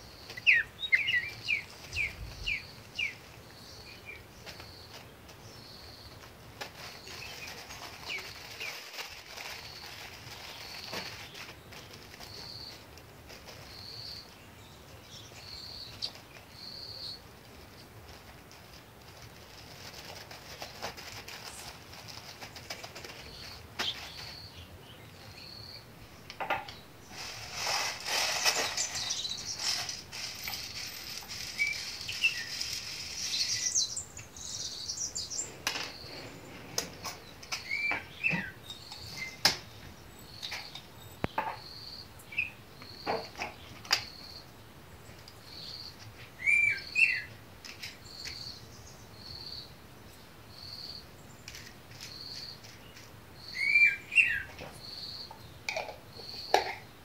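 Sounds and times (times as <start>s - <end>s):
bird chirping: 0.0s - 18.2s, 19.1s - 27.5s, 28.3s - 57.0s
seeds pouring into glass jar: 27.1s - 33.6s.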